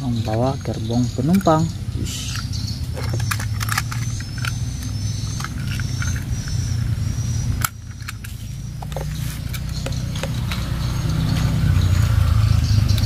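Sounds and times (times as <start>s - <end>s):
steady low rumble: 0.0s - 13.0s
plastic toy train cars clicking: 0.2s - 6.6s.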